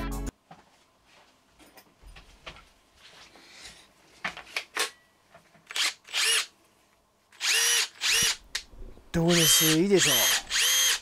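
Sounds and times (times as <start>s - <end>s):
impact driver motor whining: 7.4s - 8.4s, 9.3s - 11.0s.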